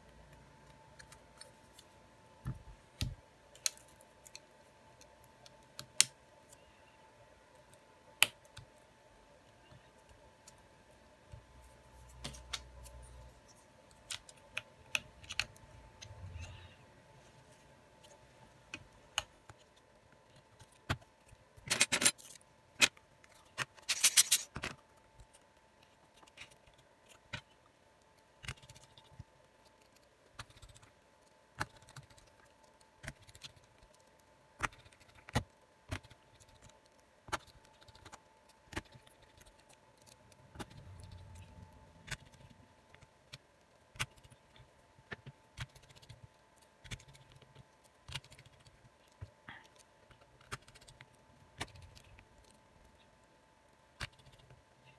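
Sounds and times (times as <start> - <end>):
faint steady tone: 0.0 - 12.1, 15.6 - 19.0.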